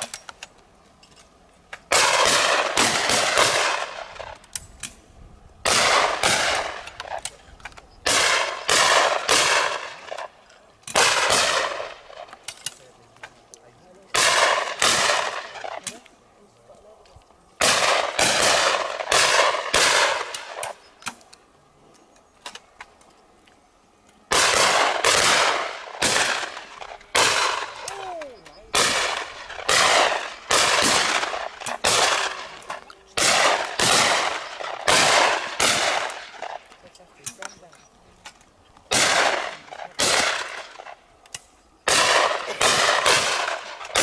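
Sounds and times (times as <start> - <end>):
shotguns firing with echo: 1.9 - 4.4, 5.6 - 7.4, 8.0 - 12.9, 14.0 - 16.0, 17.6 - 21.2, 24.3 - 37.5, 38.9 - 44.0.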